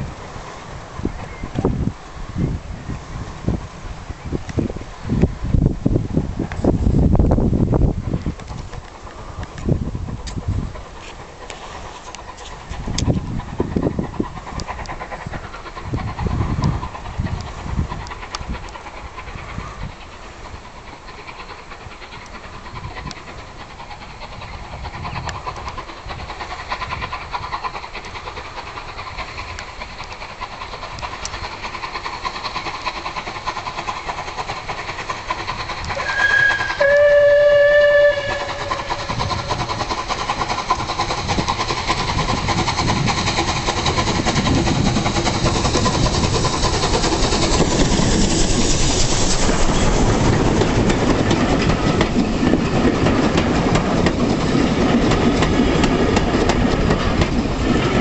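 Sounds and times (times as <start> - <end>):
steam locomotive exhaust: 0.0 - 58.0
train wheels rumbling and clattering: 0.0 - 58.0
steam whistle blast: 36.0 - 39.0.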